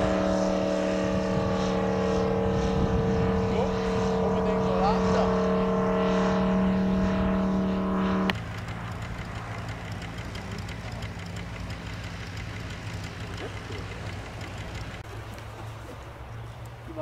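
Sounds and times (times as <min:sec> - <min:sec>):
model aircraft engine running: 0:00.0 - 0:17.0.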